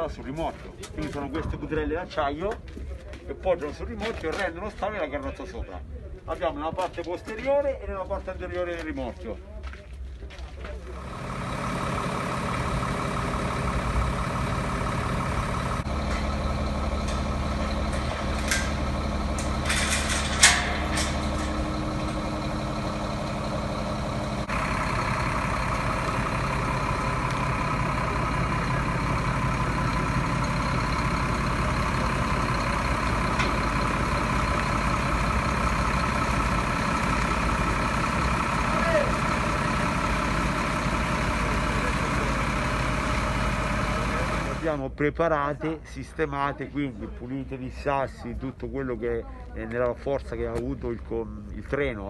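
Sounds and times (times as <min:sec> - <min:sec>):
truck engines idling: 0:00.0 - 0:52.0.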